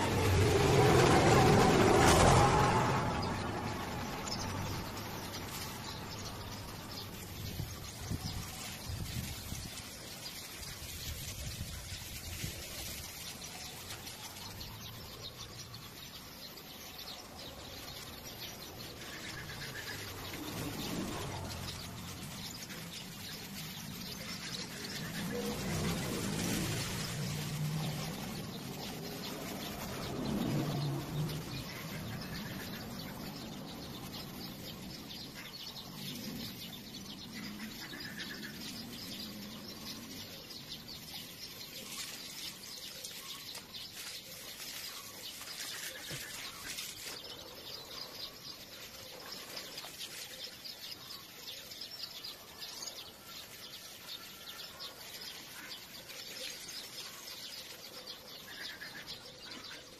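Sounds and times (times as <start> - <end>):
small birds chirping: 0.0 - 59.9
water hissing from garden hose: 0.0 - 59.9.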